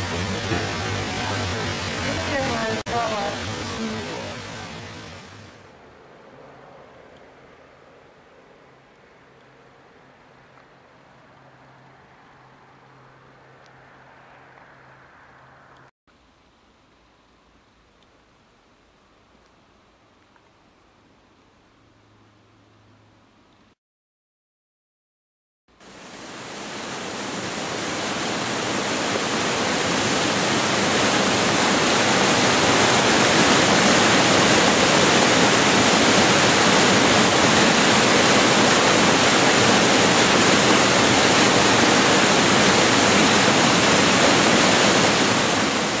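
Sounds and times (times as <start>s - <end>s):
loud steady rushing noise: 0.0s - 7.0s, 25.8s - 46.0s.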